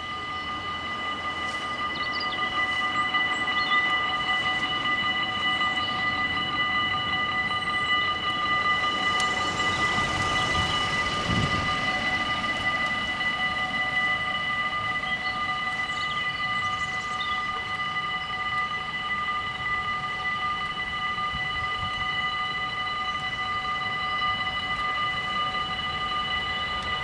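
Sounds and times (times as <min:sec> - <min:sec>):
level crossing warning bells: 0:00.0 - 0:27.0.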